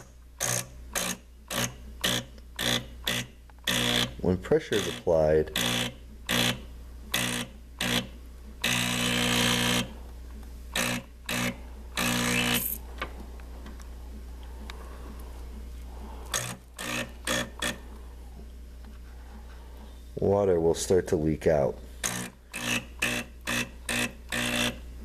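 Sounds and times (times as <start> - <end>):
espresso machine pump buzzing: 0.0 - 10.1, 10.7 - 13.3, 15.9 - 18.4, 21.9 - 25.0
steady low hum: 0.0 - 25.0.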